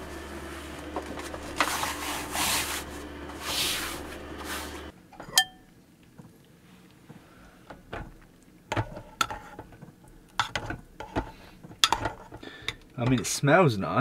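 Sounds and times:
padded cover scraping window frame: 0.0 - 4.9
low steady hum: 0.0 - 14.0.

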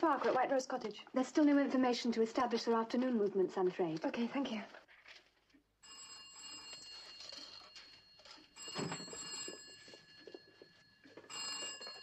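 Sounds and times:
telephone bell ringing: 5.8 - 12.0.

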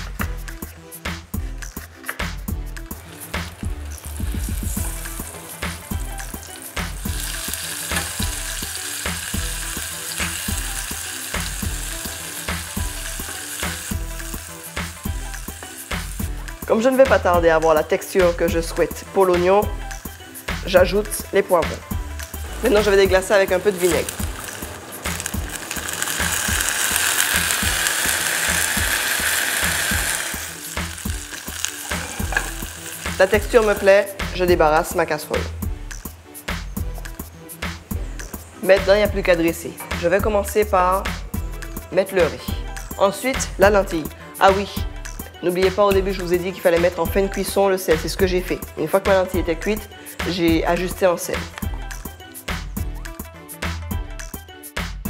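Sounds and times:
background music with steady beat: 0.0 - 55.0
onions sizzling in a saucepan: 2.8 - 17.0, 18.6 - 35.3.

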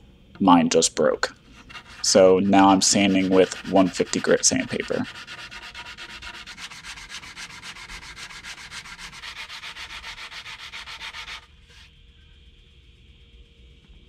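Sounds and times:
sandpaper scratching on wood: 1.5 - 11.9.

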